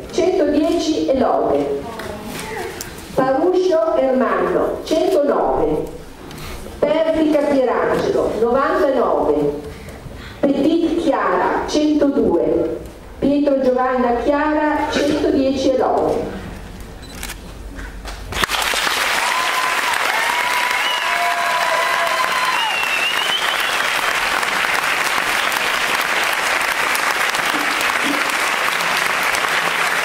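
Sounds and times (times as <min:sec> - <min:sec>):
audience applause: 0:18.3 - 0:30.0
high whistling: 0:22.5 - 0:24.0.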